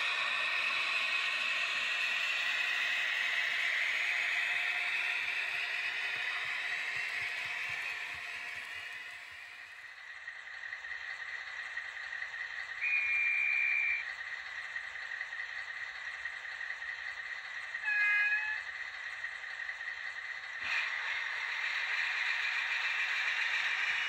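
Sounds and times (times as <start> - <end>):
model locomotive engine idle sound: 0.0 - 24.0.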